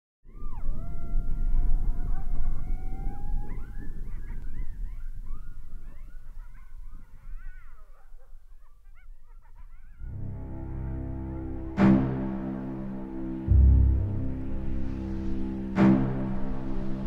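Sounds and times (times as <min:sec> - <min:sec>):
coyotes howling and yipping: 0:00.3 - 0:11.9
low rumble: 0:10.0 - 0:17.0.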